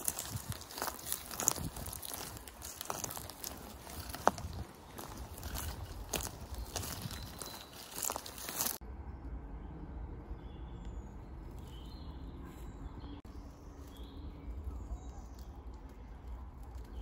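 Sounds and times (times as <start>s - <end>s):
bicycle tyres crackling over leaves: 0.0s - 8.8s, 13.2s - 17.0s.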